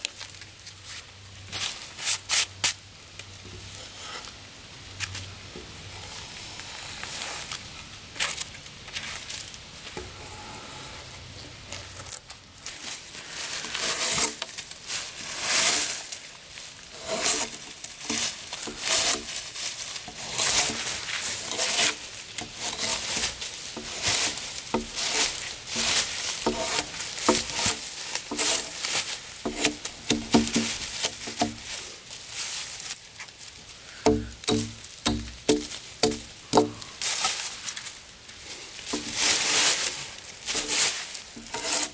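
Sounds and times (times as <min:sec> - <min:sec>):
drawknife scraping bark off log: 0:13.6 - 0:14.5, 0:16.9 - 0:19.4, 0:20.0 - 0:31.7, 0:34.0 - 0:36.9, 0:40.5 - 0:41.9.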